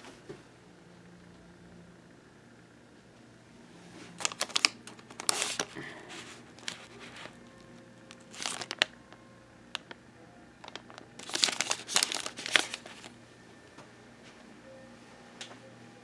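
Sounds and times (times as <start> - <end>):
pouches and sachets crinkling: 4.2 - 10.0, 10.6 - 13.2.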